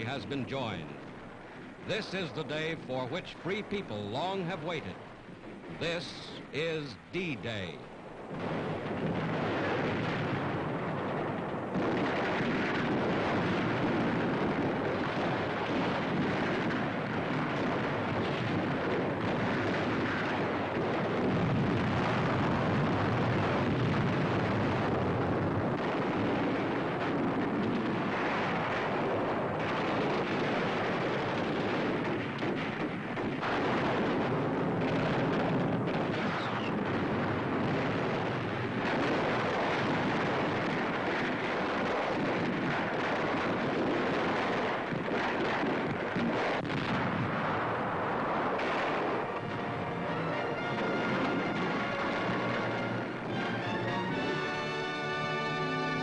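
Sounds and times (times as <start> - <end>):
shell explosions: 0.0 - 56.0
gunfire: 1.9 - 56.0.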